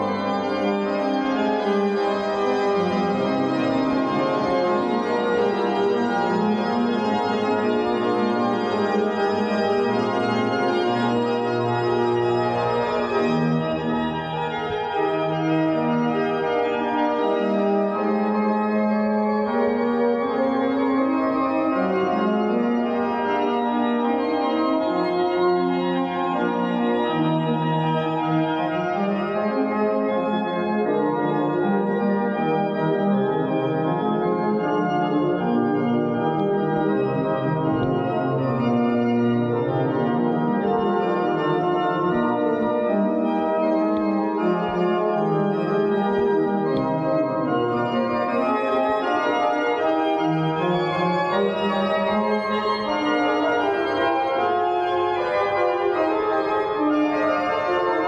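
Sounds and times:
organ playing slow chords: 0:00.0 - 0:58.0.

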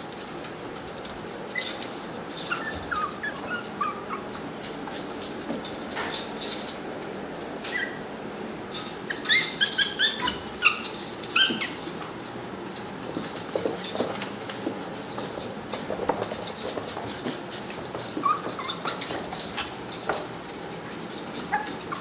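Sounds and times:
puppies yipping: 0:01.5 - 0:05.1, 0:07.6 - 0:08.1, 0:09.0 - 0:12.0, 0:16.9 - 0:20.0, 0:21.3 - 0:22.0.

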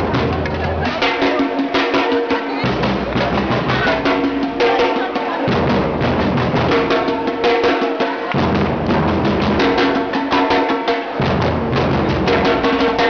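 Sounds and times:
deep bass drum: 0:00.0 - 0:01.3, 0:02.6 - 0:07.4, 0:08.3 - 0:10.2, 0:11.2 - 0:13.0
crowd singing: 0:00.0 - 0:05.6
drum group playing fast beat: 0:00.0 - 0:13.0.

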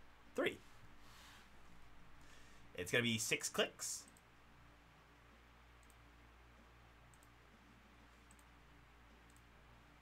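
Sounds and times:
faint computer mouse clicks: 0:05.8 - 0:06.0, 0:07.1 - 0:07.4, 0:08.2 - 0:08.5, 0:09.2 - 0:09.5.

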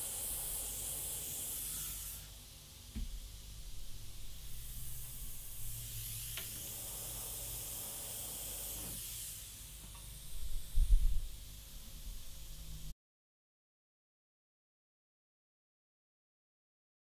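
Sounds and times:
airbrush hissing: 0:00.0 - 0:02.4, 0:03.4 - 0:12.7.

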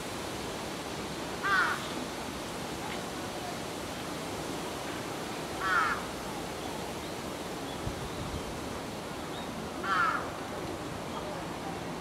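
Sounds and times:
outdoor background hiss: 0:00.0 - 0:12.0
crow cawing: 0:01.4 - 0:01.8, 0:05.6 - 0:06.0, 0:09.8 - 0:10.2.

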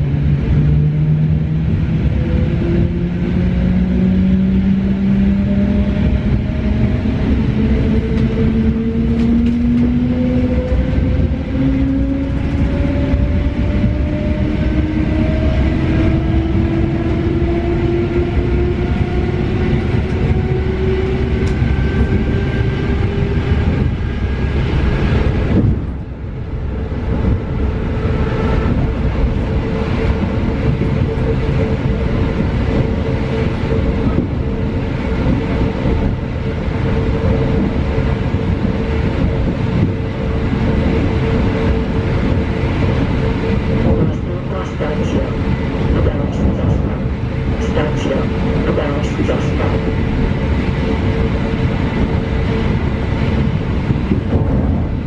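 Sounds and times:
wheels rumbling on rail: 0:00.0 - 0:55.0.

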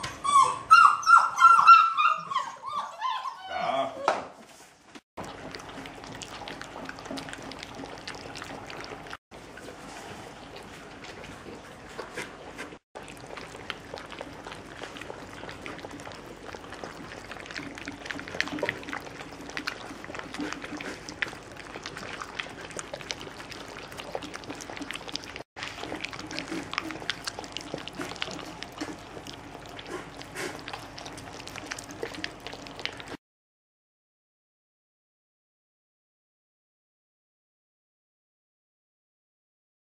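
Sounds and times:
dog licking a bowl: 0:05.2 - 0:33.2
puppies lapping from metal dish: 0:05.2 - 0:33.2.

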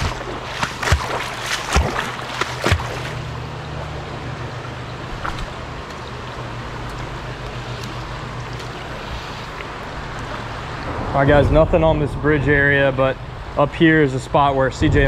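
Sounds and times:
creek water running over rocks: 0:00.0 - 0:10.9.

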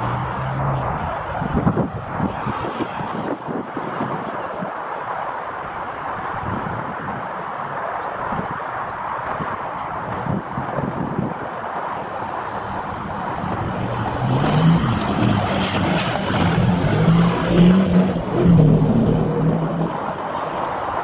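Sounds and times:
vehicle engine revving: 0:12.9 - 0:20.3.

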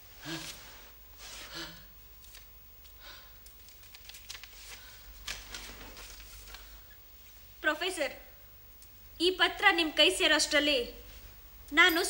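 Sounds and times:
paper crackling: 0:03.4 - 0:06.8.

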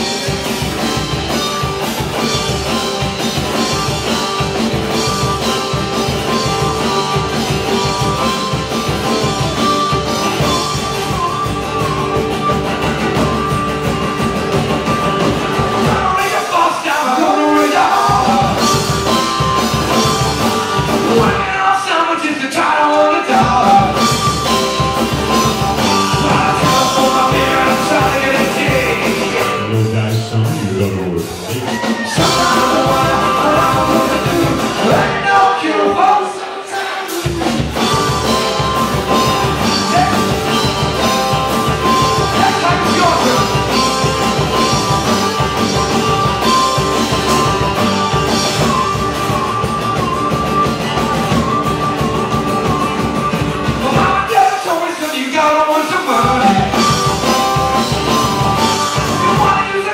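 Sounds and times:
bass guitar: 0:00.0 - 0:21.8, 0:23.3 - 0:36.0, 0:37.2 - 0:54.5, 0:56.1 - 0:59.9
drum kit: 0:00.0 - 0:21.8, 0:23.2 - 0:59.9
man singing: 0:15.6 - 0:19.4, 0:20.8 - 0:24.6, 0:25.3 - 0:38.4, 0:39.1 - 0:44.8, 0:53.7 - 0:57.4, 0:58.6 - 0:59.9
strummed acoustic guitar: 0:23.3 - 0:30.7, 0:36.8 - 0:59.9.

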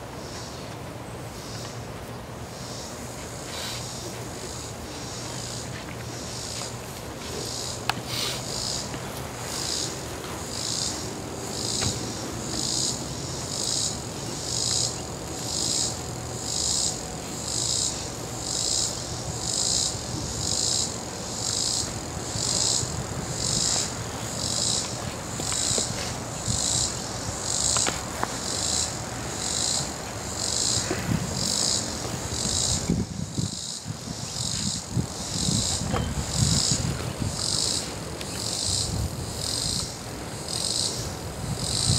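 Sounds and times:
insects shrilling: 0:07.4 - 0:41.9.

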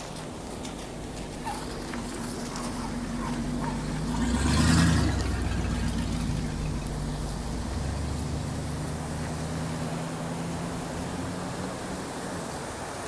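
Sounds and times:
tyres hissing through water: 0:00.0 - 0:13.0
vehicle engine passing: 0:00.0 - 0:13.0.

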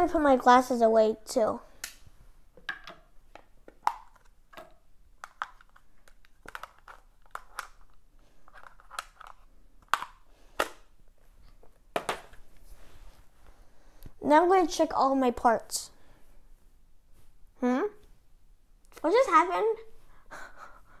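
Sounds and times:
small objects clicking on desk: 0:02.6 - 0:07.9.

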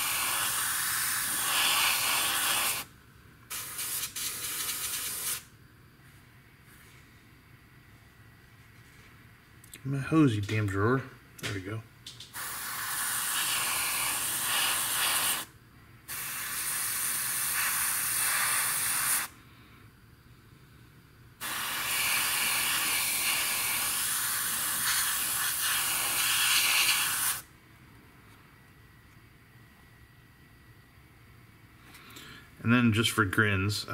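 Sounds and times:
airbrush spraying hiss: 0:00.0 - 0:02.9, 0:03.5 - 0:05.5, 0:12.2 - 0:15.5, 0:16.1 - 0:19.4, 0:21.4 - 0:27.5.

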